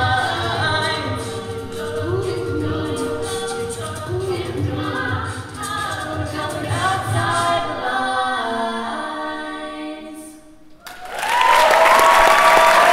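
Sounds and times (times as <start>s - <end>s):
a cappella group singing: 0.0s - 10.7s
audience applause and cheers: 10.8s - 12.9s.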